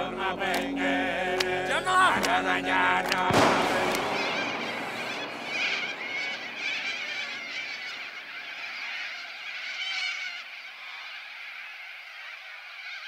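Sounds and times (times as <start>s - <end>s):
high chirping animal calls: 3.8s - 13.0s.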